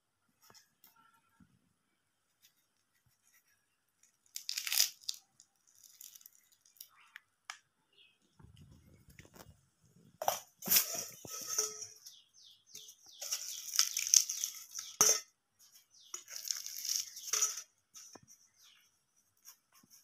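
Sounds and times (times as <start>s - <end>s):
crisp pastry crackling: 2.5s - 7.1s, 12.8s - 15.0s, 16.0s - 18.7s
sharp pastry crack: 4.0s - 6.9s, 13.2s - 15.1s, 16.2s - 17.5s.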